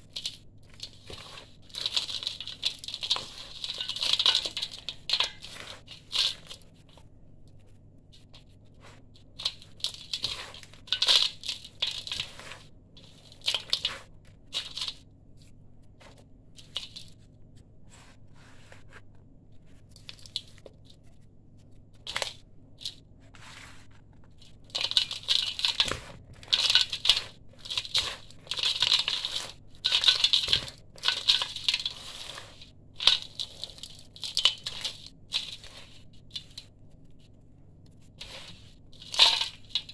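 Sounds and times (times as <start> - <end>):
gritty mix crunching by hand: 0.0 - 6.7, 8.8 - 15.0, 23.4 - 36.7, 38.1 - 39.9
grains trickling onto metal: 0.2 - 6.3, 26.5 - 35.8, 38.2 - 39.9.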